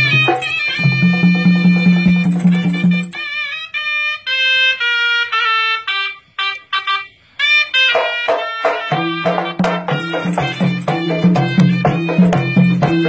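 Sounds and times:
barrel drums: 0.0 - 3.3, 7.9 - 13.0
double-reed shawm melody: 0.0 - 13.0.

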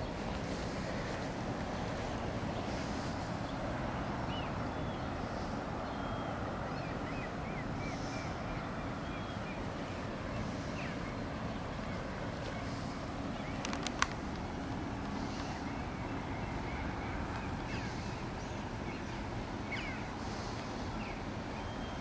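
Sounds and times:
bird chirping: 0.0 - 14.2, 15.1 - 22.0
distant traffic rumble: 0.0 - 22.0.

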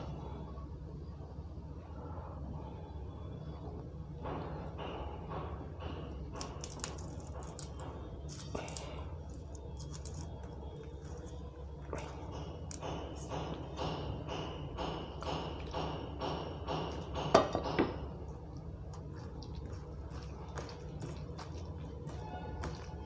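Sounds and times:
fingers mixing rice on plate: 6.4 - 17.2, 18.1 - 23.0.

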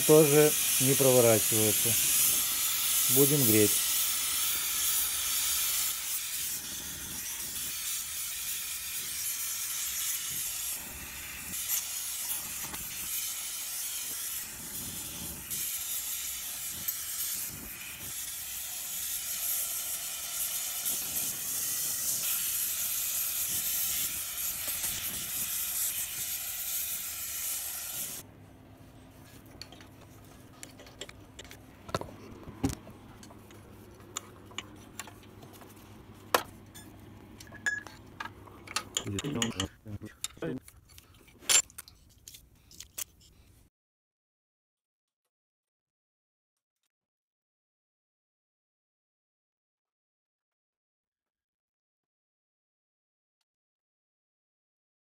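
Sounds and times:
gas torch hissing: 0.0 - 28.2.

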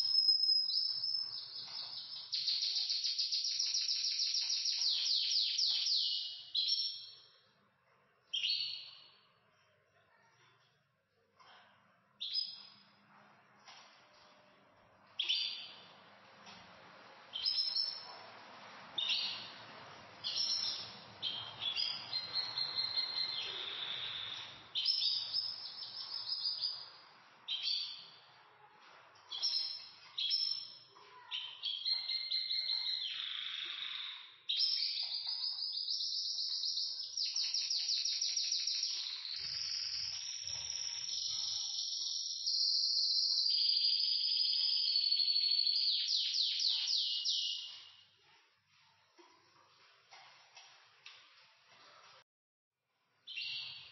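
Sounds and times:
canaries singing: 0.0 - 7.4, 15.1 - 28.4, 29.2 - 48.0, 53.3 - 53.9.

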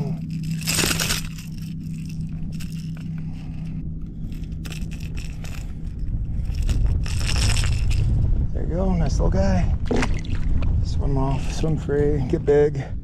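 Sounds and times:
handling rustle: 0.0 - 8.1
steady low hum: 0.0 - 13.0.

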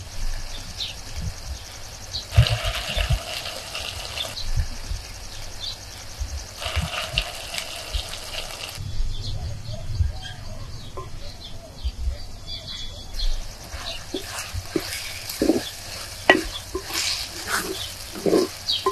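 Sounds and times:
vegetables sizzling in pot: 1.8 - 4.5, 5.3 - 8.8, 13.4 - 18.9.

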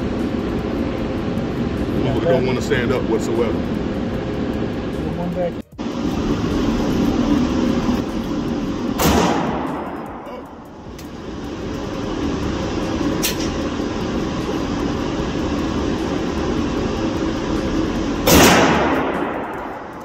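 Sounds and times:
rushing background noise: 0.0 - 20.0
pistol shot: 9.0 - 10.0, 18.2 - 19.5.

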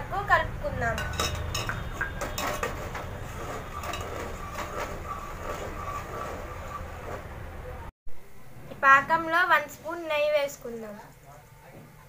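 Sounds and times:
spoon scraping a metal pot: 0.9 - 7.3
sharp knocks: 1.1 - 3.2.

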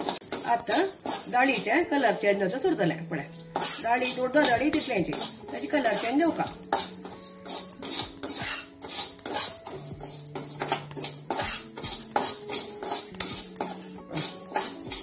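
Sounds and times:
lentils scraped in a dry pan: 3.5 - 7.0.

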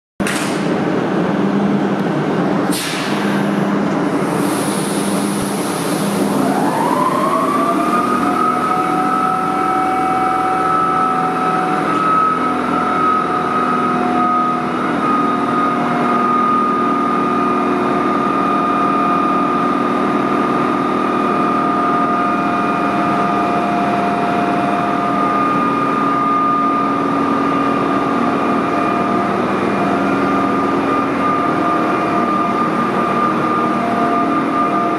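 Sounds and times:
electric locomotive traction whine: 0.6 - 34.9
brief high hiss: 2.7 - 3.4.

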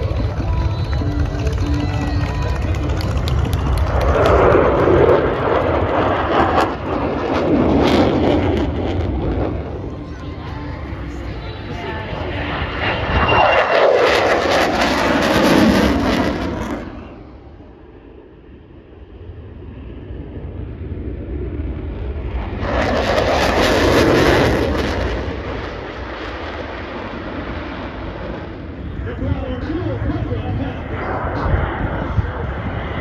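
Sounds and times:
jet aircraft roaring past: 0.0 - 33.0.

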